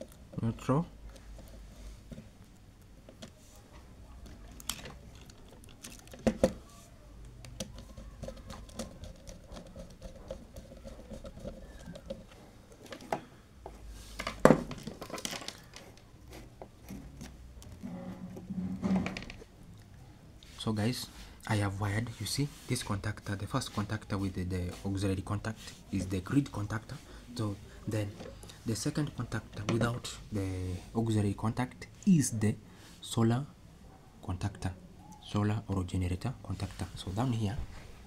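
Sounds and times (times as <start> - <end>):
wires being handled: 0.0 - 19.5.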